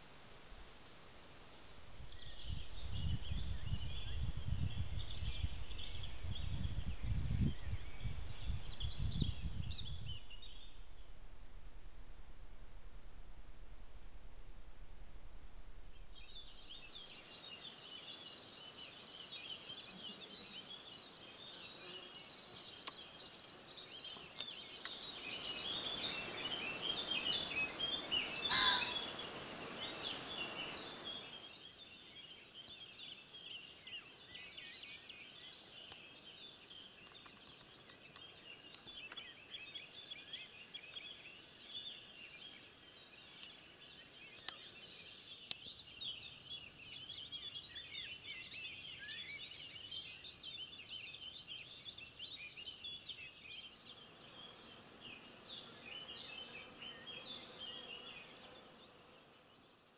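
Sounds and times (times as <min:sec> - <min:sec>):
birds chirping and singing: 0:02.1 - 0:10.8, 0:16.0 - 0:59.8
short rapid bird trills: 0:27.4 - 0:29.3
pheasant crowing: 0:28.4 - 0:29.2.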